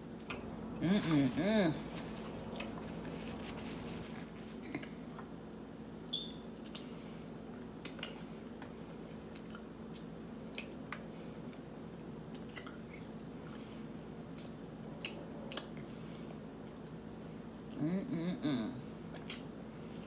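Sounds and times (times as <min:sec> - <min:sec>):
low steady hum: 0:00.0 - 0:20.0
wet chewing and lip smacks: 0:05.7 - 0:06.9, 0:07.8 - 0:08.2, 0:09.2 - 0:11.0, 0:12.3 - 0:13.3, 0:14.2 - 0:15.9, 0:19.1 - 0:19.5.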